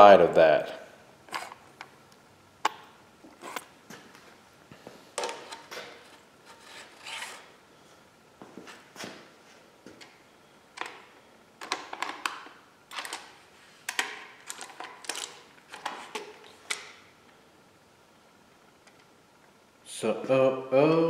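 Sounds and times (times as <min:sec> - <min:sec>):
metal and plastic parts clacking: 0:11.6 - 0:13.3, 0:13.9 - 0:16.9.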